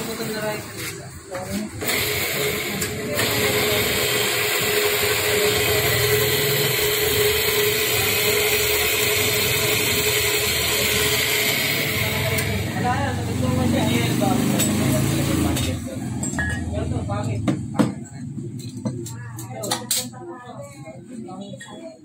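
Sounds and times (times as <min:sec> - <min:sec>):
drill press humming: 0:01.8 - 0:12.8
drill bit drilling into metal: 0:01.9 - 0:12.7.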